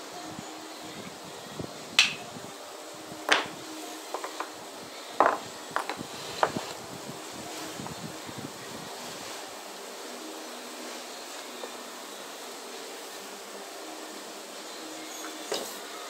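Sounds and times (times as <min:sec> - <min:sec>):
background hiss: 0:00.0 - 0:16.0.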